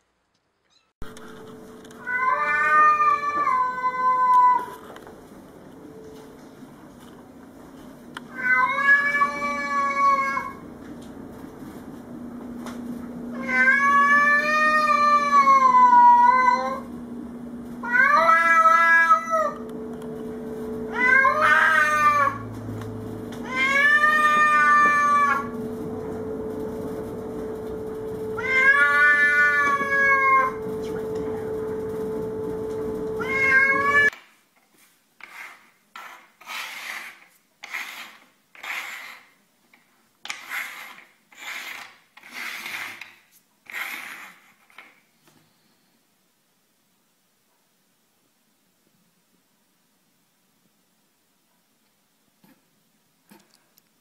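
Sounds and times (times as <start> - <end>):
cat yowling: 2.0 - 4.8, 8.3 - 10.6, 13.3 - 16.9, 17.8 - 19.6, 20.9 - 22.5, 23.4 - 25.6, 28.4 - 30.6, 33.2 - 34.1
steady low hum: 19.4 - 34.1
rubbing scrapes on wooden table: 34.8 - 39.4, 40.3 - 44.9.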